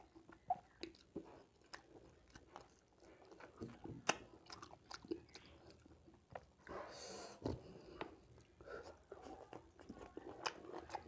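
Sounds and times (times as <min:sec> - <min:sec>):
chewing: 0:00.0 - 0:11.0.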